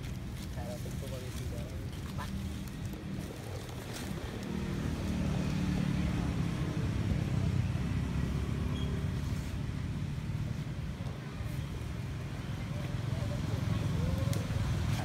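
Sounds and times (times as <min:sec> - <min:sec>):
passing vehicle engine rumble: 0:00.0 - 0:15.0.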